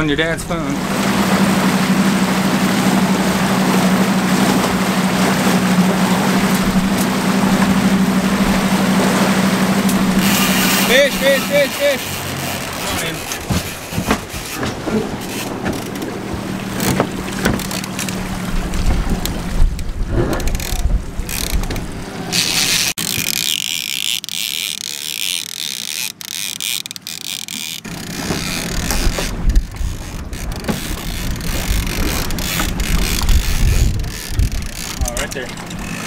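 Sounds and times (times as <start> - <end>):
outboard motor hum: 0.0 - 36.0
fishing reel ratchet clicking: 10.2 - 13.4, 20.4 - 21.7, 22.4 - 36.0
wind on microphone: 18.2 - 23.0, 28.4 - 35.2.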